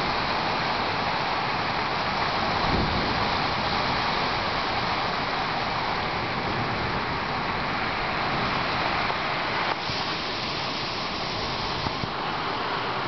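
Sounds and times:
heavy rain pouring: 0.0s - 13.0s
wind gusting through trees: 0.0s - 13.0s
low rumbling thunder: 2.4s - 4.8s.

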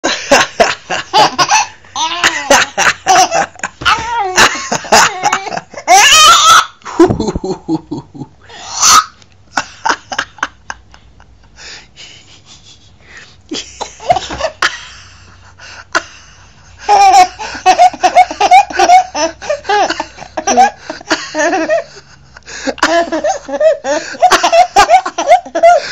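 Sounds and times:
baby laughing: 1.1s - 6.8s, 16.8s - 21.8s, 22.8s - 25.9s.

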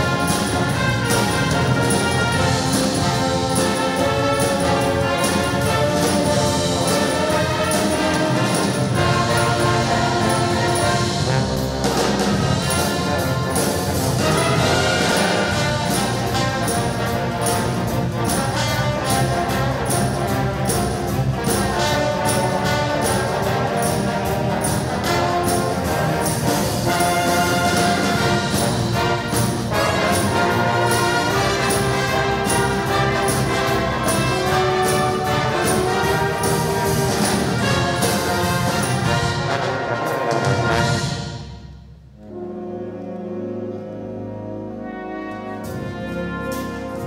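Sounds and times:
wind band playing pop music: 0.0s - 47.0s.

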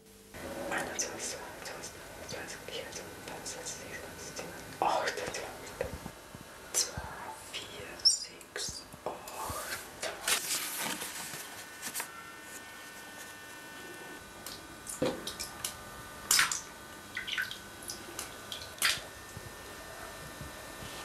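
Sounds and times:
faint steady hum: 0.0s - 21.0s
bathwater sloshing and dripping: 14.5s - 15.7s, 16.3s - 19.1s.

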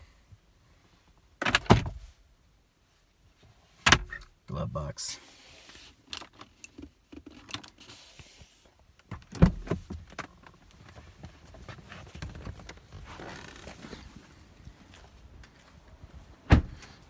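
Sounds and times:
scuffing and rustling: 10.8s - 16.4s
thump: 16.5s - 16.8s.

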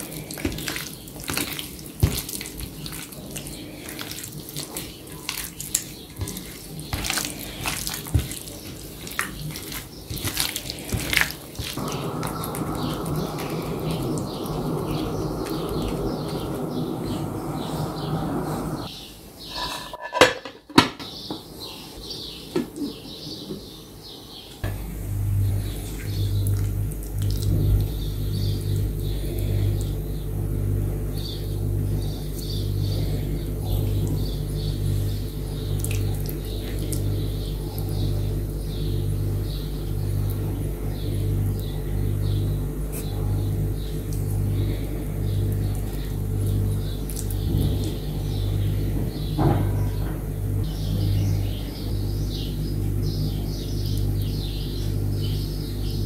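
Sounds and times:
small birds chirping: 0.0s - 20.0s, 21.0s - 56.0s
pulsing low hum: 11.8s - 18.9s, 24.6s - 56.0s.

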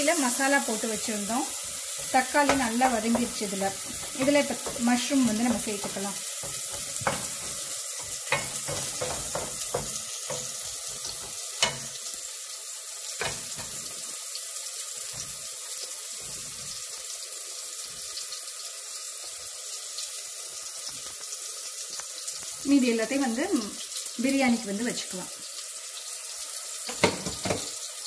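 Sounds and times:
gravy sizzling in a frying pan: 0.0s - 28.0s
wooden spatula scraping a pan: 0.4s - 12.1s, 16.2s - 17.0s.

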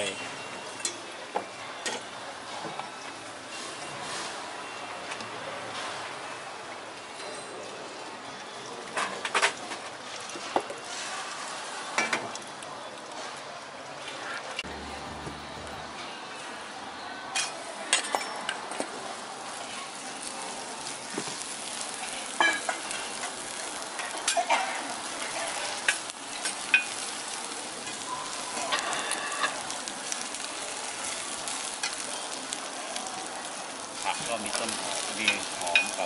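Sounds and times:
vegetables sizzling on a griddle: 0.0s - 12.4s, 14.7s - 16.0s, 18.6s - 36.0s
metal spatula scraping a griddle: 14.7s - 16.0s.

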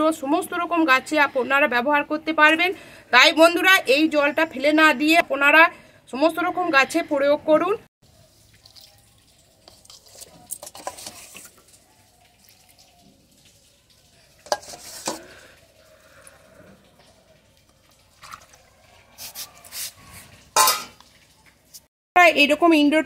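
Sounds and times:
water splashing and trickling: 8.0s - 21.9s.

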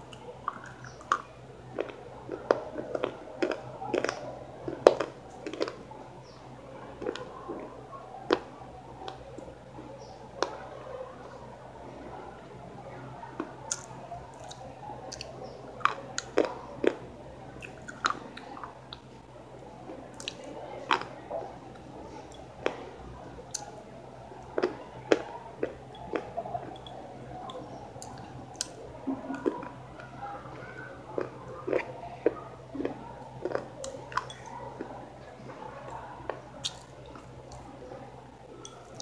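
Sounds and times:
mouth clicks: 0.0s - 4.2s, 13.7s - 17.0s, 31.2s - 37.7s
person chewing crunchy food: 0.0s - 5.8s, 7.0s - 7.7s, 13.7s - 19.1s, 20.1s - 21.1s, 24.5s - 26.9s, 27.5s - 37.6s.

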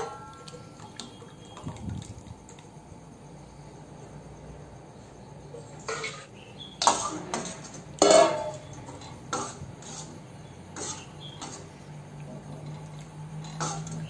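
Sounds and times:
ladle scraping a steel pot: 5.8s - 11.9s, 12.6s - 14.0s
metal on metal clanks: 5.9s - 8.7s.

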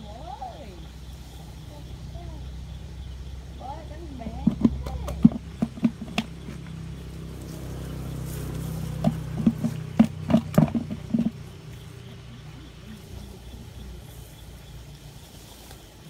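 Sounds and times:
low motor hum: 0.0s - 16.0s
sharp clicks and knocks: 4.3s - 6.8s, 9.0s - 11.5s.

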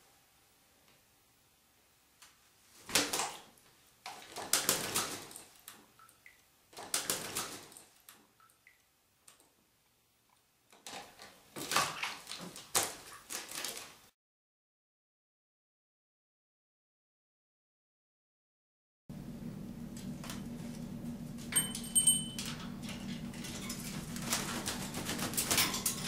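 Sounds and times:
parrot splashing in water: 2.9s - 8.9s, 10.8s - 14.0s.

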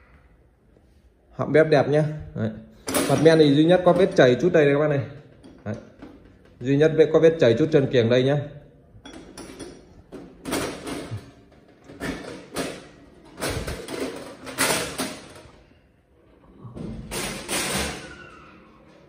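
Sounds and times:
sheet metal scraping and rattling: 9.1s - 15.6s.

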